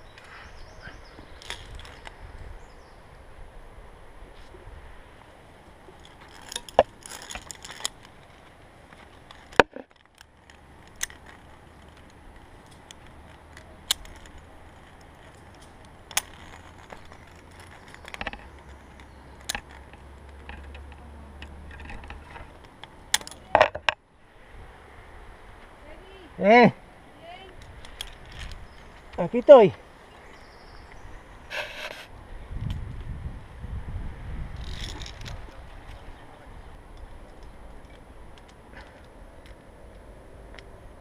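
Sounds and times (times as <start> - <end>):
carabiners clinking on steel cable: 1.4 - 2.1, 6.0 - 24.0, 27.6 - 29.5, 34.6 - 36.0.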